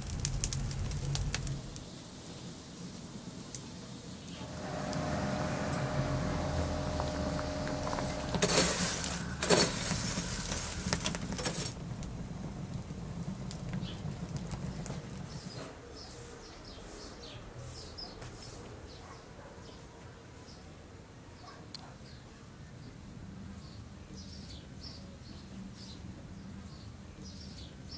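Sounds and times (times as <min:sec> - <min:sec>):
boiling water bubbling: 0:00.0 - 0:15.6
wood fire crackling: 0:00.0 - 0:18.9.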